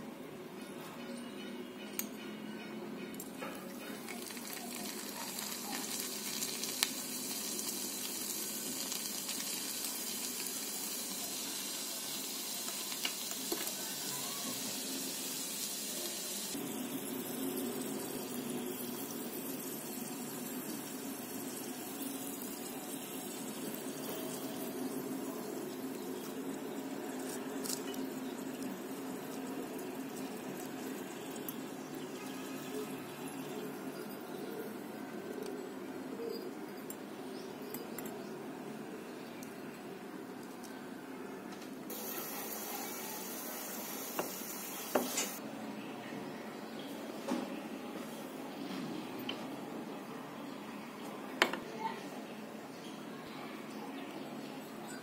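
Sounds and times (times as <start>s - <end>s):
oil sizzling and bubbling: 3.2s - 36.7s, 41.9s - 45.4s.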